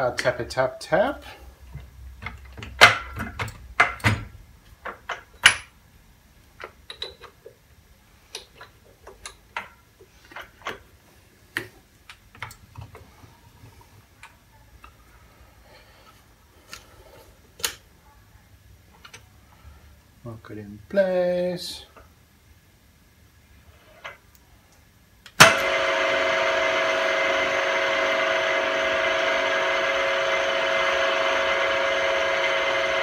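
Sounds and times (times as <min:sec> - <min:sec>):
metal tooling clicks and knocks: 0:01.8 - 0:05.8, 0:06.5 - 0:07.6.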